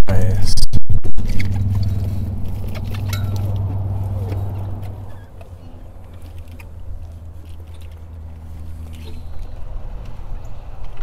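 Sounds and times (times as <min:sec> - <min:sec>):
boat motor idling: 0:01.3 - 0:09.7.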